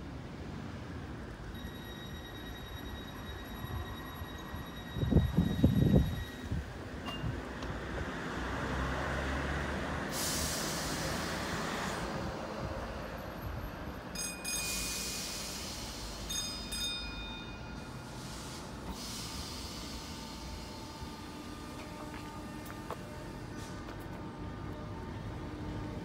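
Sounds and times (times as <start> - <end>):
short high beeps: 1.6 - 7.4
air hiss: 10.1 - 12.1, 14.8 - 16.4, 17.9 - 20.8
train equipment humming: 14.0 - 26.0.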